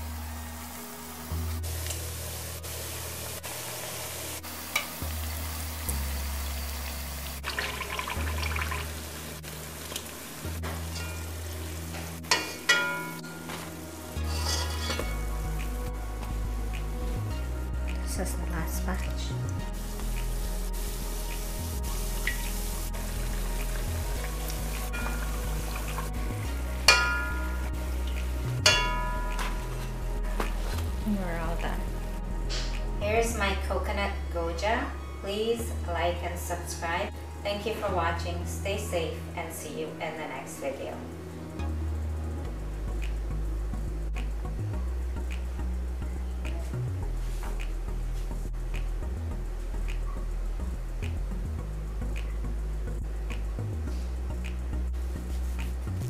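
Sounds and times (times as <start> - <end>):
oil sizzling in deep-frying: 0.6 - 15.8, 19.6 - 29.8
spoon moving through oil: 14.2 - 15.2.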